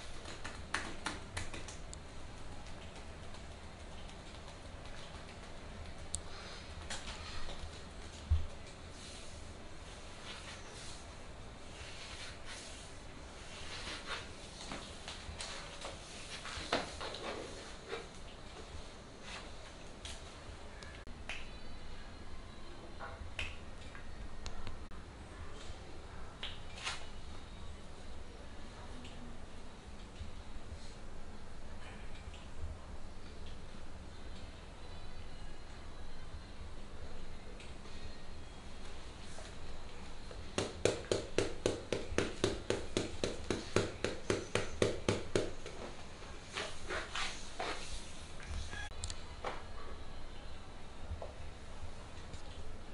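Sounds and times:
hands slapping rhythmically: 0.0 - 6.2, 23.4 - 23.6, 40.6 - 45.7
faint low hum: 0.0 - 52.9.

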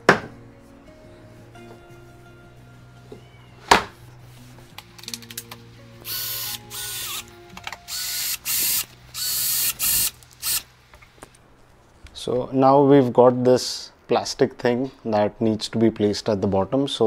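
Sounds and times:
cordless drill driving screws: 6.1 - 7.3, 7.9 - 10.7.

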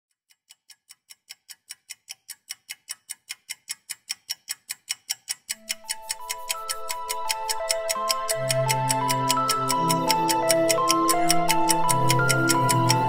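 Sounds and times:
clock ticking fast: 0.1 - 13.0
soft sustained music notes: 5.6 - 13.0.

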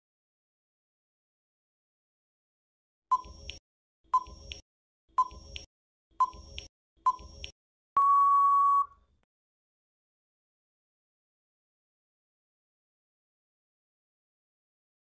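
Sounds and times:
countdown timer beeps: 3.1 - 4.6, 5.2 - 8.9.

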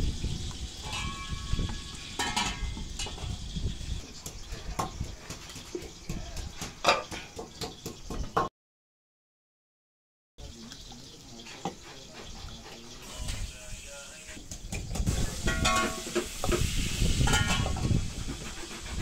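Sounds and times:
ladle clinking against clay pots: 0.7 - 3.3, 15.4 - 16.4, 17.3 - 17.8.

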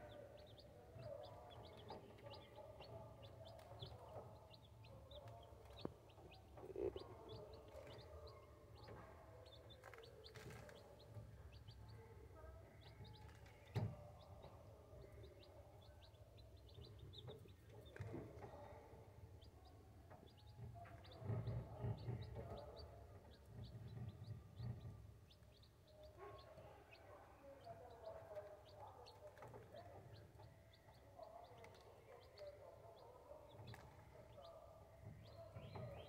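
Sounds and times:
chicks peeping: 0.0 - 36.0.

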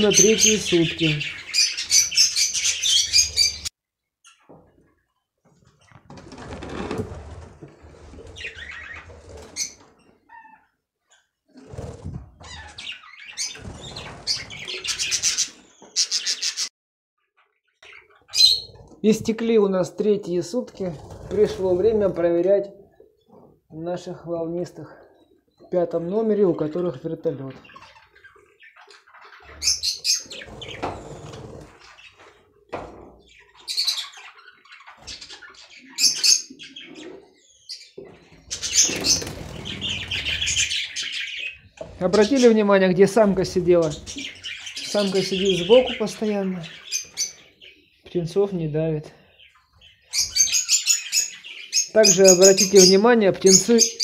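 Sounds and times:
budgerigars chirping: 0.0 - 3.7, 8.4 - 9.0, 12.5 - 16.7, 17.8 - 18.8, 27.6 - 32.3, 33.2 - 48.0, 49.3 - 54.0.

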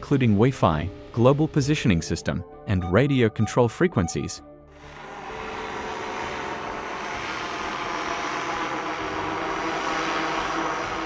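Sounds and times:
drone propellers buzzing: 4.7 - 11.0.

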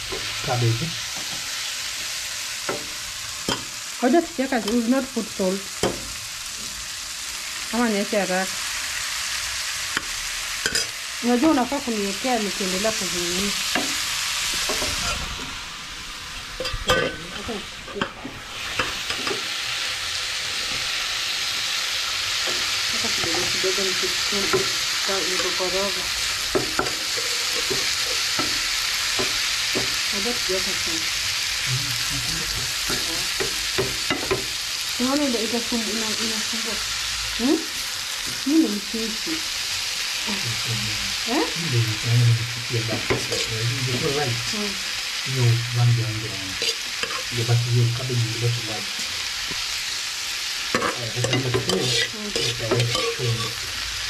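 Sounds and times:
vegetables sizzling in a frying pan: 0.0 - 54.0
wooden spoon knocking and scraping pan: 13.7 - 15.5, 24.4 - 25.7, 26.5 - 30.0, 32.8 - 34.5, 42.9 - 44.2, 50.7 - 53.6.

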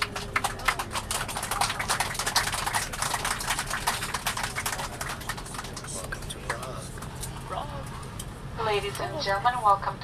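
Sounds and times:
rapid clicking and rattling: 0.0 - 7.4
airliner cabin drone: 0.0 - 10.0.

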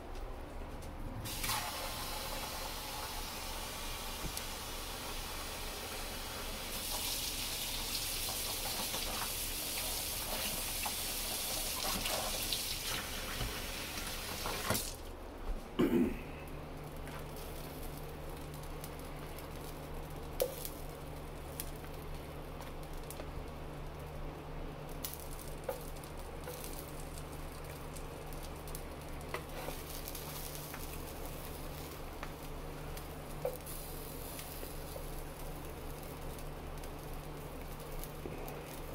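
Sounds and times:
food sizzling on griddle: 1.3 - 15.0, 25.0 - 38.9.

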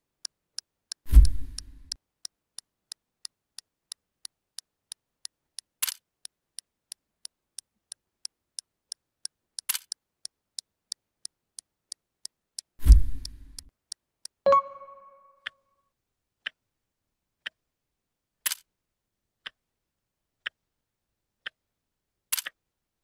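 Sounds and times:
fast clock ticking: 0.0 - 14.4.

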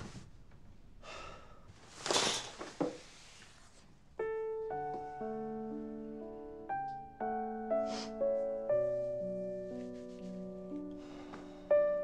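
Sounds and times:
soft piano music: 4.1 - 12.0.

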